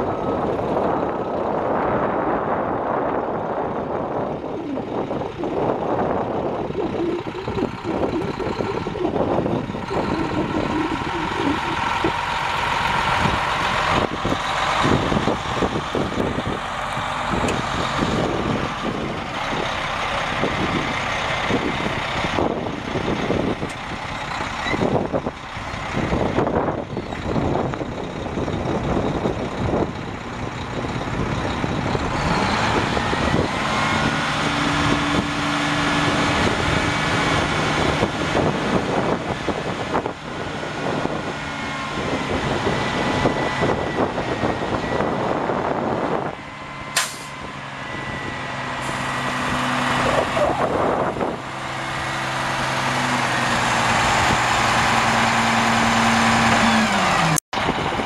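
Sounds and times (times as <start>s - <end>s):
diesel truck engine running: 0.0s - 58.0s
hydraulic hoist whine: 4.2s - 25.2s
sharp snap: 47.0s - 47.4s.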